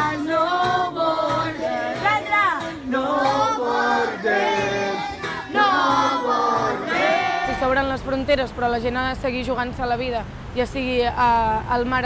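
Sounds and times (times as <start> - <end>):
children singing in chorus: 0.0 - 7.6
woman singing: 0.0 - 8.0
acoustic guitar: 0.0 - 8.8.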